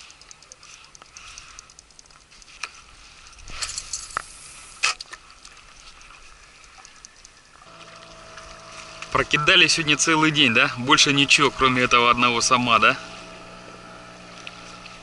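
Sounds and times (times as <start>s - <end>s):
sharp clicks: 0.0s - 7.7s
fishing reel ticking: 0.0s - 15.0s.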